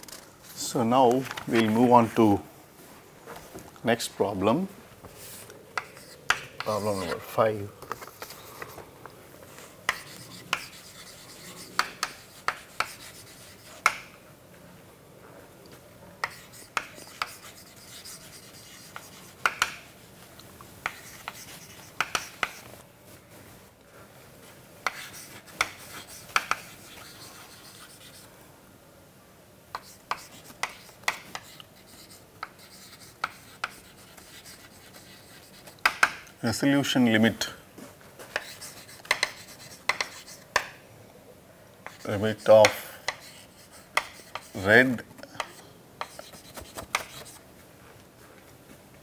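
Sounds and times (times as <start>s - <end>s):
chalk writing on chalkboard: 5.2s - 7.3s, 9.9s - 14.1s, 16.2s - 19.9s, 20.8s - 22.7s, 24.8s - 28.3s, 29.7s - 36.2s, 38.3s - 40.7s, 41.8s - 47.4s.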